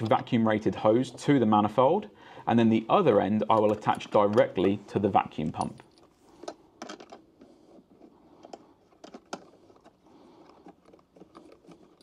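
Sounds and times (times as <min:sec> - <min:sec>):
hose fitting clicks and taps: 0:03.4 - 0:04.8.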